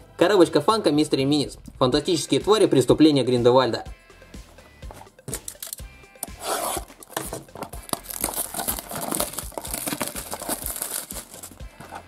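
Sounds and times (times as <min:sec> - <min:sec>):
shrink-wrap crinkling and tearing: 0:05.4 - 0:12.0.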